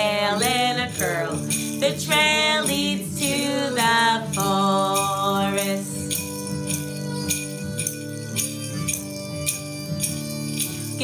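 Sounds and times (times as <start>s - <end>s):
person singing: 0.0s - 8.5s
guitar and harmonica: 0.0s - 11.0s
jingle bells shaking: 0.0s - 11.0s.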